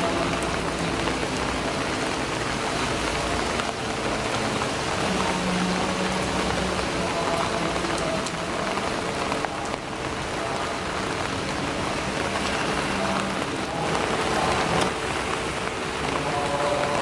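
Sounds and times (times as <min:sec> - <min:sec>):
rain falling on leaves: 0:00.0 - 0:17.0.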